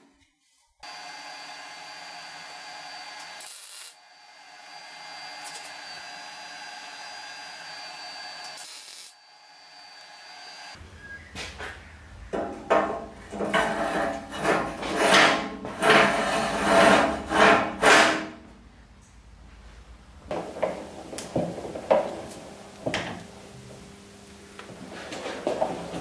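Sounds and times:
metal-on-metal scraping: 12.3 - 18.6.

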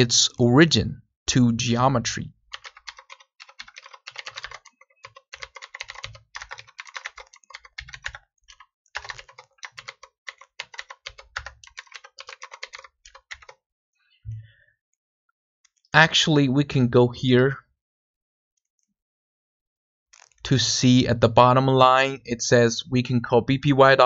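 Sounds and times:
fast typing on keyboard: 2.5 - 13.6.

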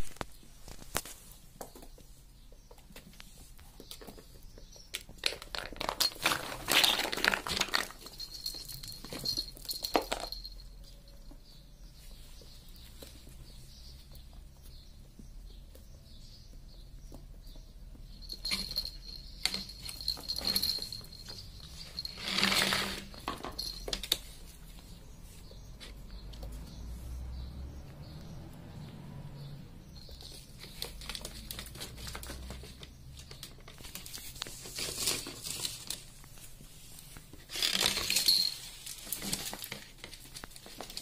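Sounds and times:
ferret scrabbling among toys: 0.0 - 10.7, 18.2 - 26.8, 29.9 - 41.0.

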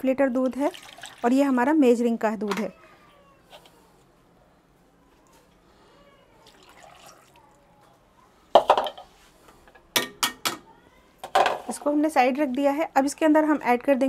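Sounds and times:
milk dripping and trickling: 6.4 - 7.6.

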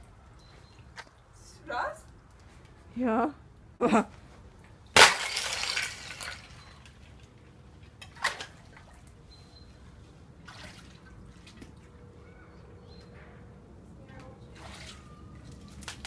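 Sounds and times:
ice slab crashing and shattering: 5.0 - 6.5.

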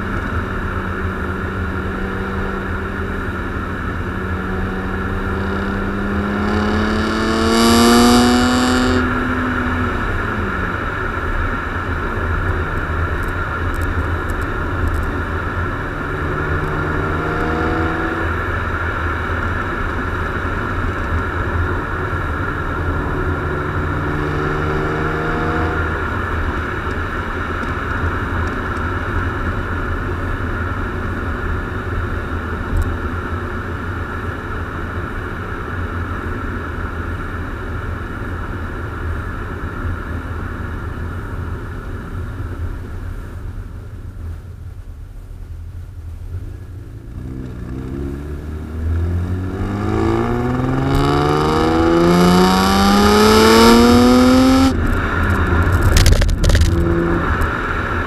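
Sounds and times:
car accelerating hard: 0.0 - 27.5, 47.0 - 58.0
car exhaust drone: 0.0 - 58.0.

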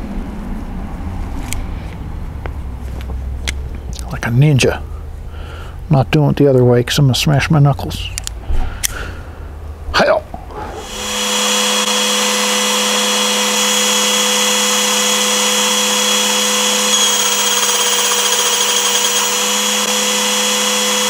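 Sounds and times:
belt sander running: 10.6 - 21.0.

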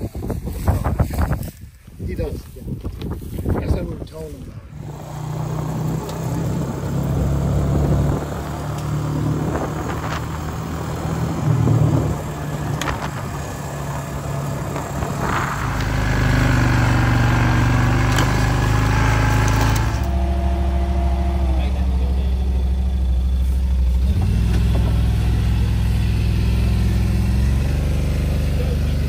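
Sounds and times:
tyres on gravel: 2.3 - 25.4
atv engine running: 4.6 - 29.0.

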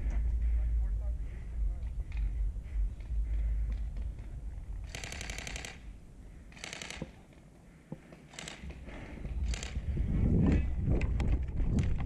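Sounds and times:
airsoft gunfire burst: 4.9 - 5.8
wind rumble on microphone: 8.7 - 12.0.

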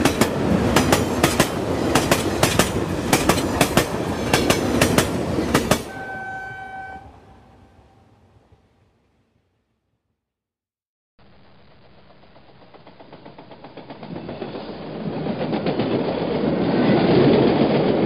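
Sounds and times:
train wheels clicking over rail joints: 0.0 - 5.9, 12.3 - 18.0
train horn note: 5.8 - 8.2.

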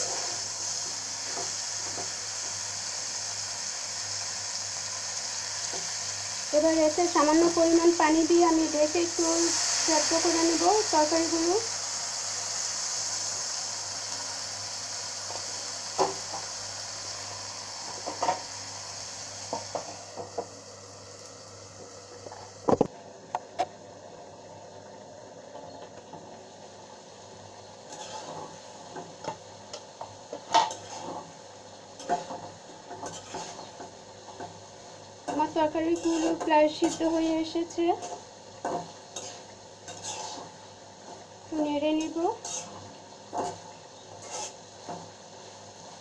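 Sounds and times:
curry sizzling in a pan: 0.0 - 23.0, 23.6 - 46.0
curry being stirred and scraped: 30.6 - 31.2, 33.0 - 33.8, 38.0 - 40.6, 42.4 - 42.8, 44.2 - 44.6.

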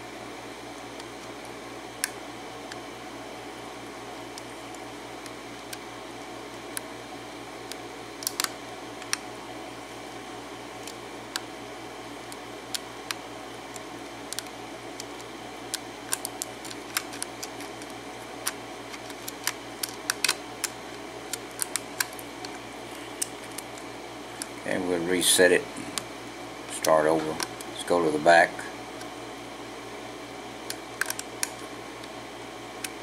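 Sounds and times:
background hum: 0.0 - 33.0.

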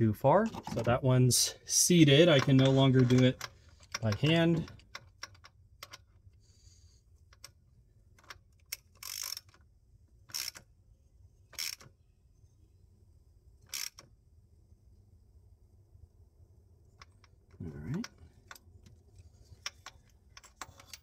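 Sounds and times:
socket ratchet clicking: 2.4 - 6.1, 8.2 - 9.6, 10.2 - 10.7, 11.5 - 11.9, 13.7 - 14.1.

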